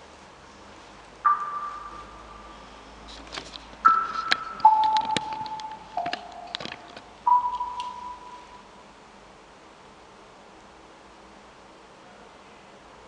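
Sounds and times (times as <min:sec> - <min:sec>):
single ringing notes: 0:01.3 - 0:02.8, 0:03.8 - 0:08.8
sharp clicks: 0:03.1 - 0:08.2.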